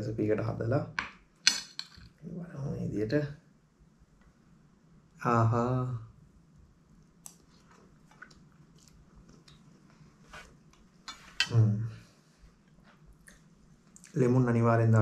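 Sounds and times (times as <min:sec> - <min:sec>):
wet chewing and mouth clicks: 0:07.0 - 0:10.9.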